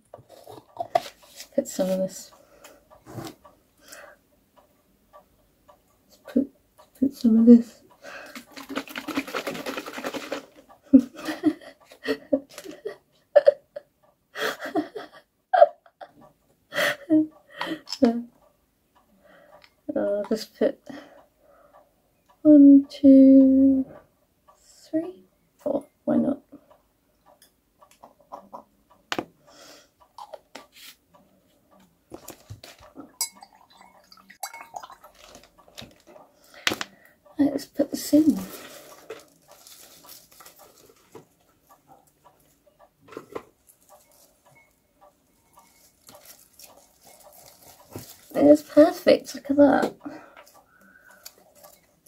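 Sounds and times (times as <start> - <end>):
person breathing: 2.4 - 3.0, 3.8 - 4.2, 8.0 - 8.5, 16.7 - 17.9, 19.1 - 19.7, 20.9 - 21.9, 29.4 - 30.0, 36.3 - 37.3, 50.0 - 51.5
person laughing softly: 10.9 - 17.8
pots clinking and knocking: 32.2 - 36.0.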